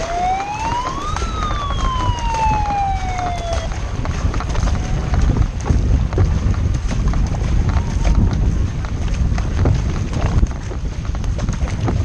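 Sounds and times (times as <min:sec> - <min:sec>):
siren wail: 0:00.0 - 0:03.9, 0:04.5 - 0:05.4, 0:07.7 - 0:08.4
paddles splashing in water: 0:00.0 - 0:12.0
wind rumble on microphone: 0:00.0 - 0:12.0.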